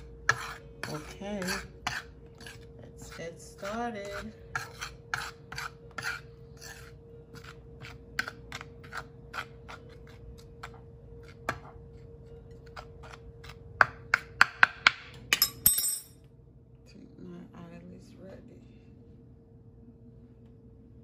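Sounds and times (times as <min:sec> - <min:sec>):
utensil scraping through flour: 0:00.0 - 0:10.6.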